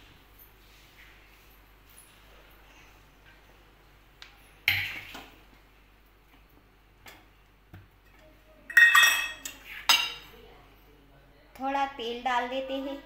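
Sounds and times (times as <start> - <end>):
metal utensils clinking: 8.7 - 10.3.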